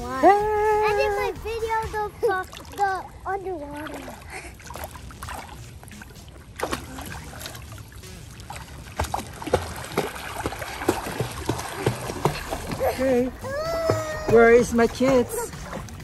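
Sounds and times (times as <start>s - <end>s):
children splashing in pool water: 8.6s - 15.9s.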